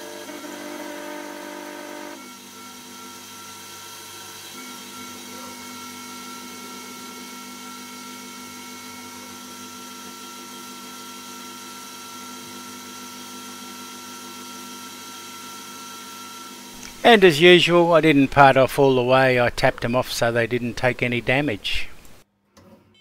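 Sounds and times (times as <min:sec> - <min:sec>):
tool cutting brass: 0:00.0 - 0:17.1
lathe spindle whining: 0:00.0 - 0:17.6.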